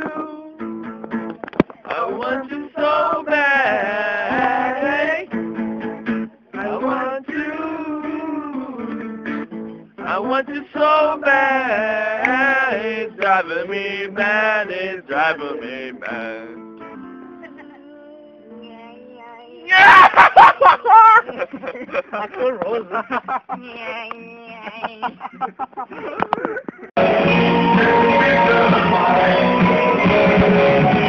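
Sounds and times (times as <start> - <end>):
person singing: 0.0 - 0.8, 1.8 - 5.3, 6.5 - 9.2, 10.0 - 19.8, 27.0 - 31.0
acoustic guitar: 0.0 - 20.5, 21.2 - 31.0.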